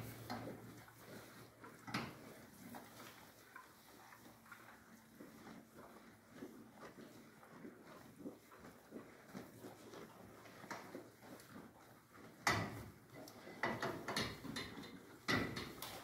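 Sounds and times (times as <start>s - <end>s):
cows rustling and tearing hay: 0.0s - 16.0s.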